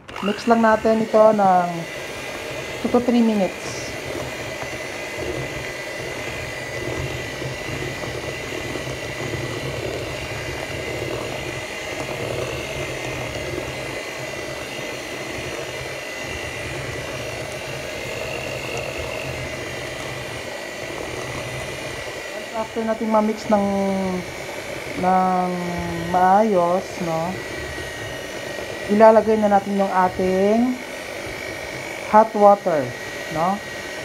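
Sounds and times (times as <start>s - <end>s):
electric hand mixer running: 0.0s - 34.0s.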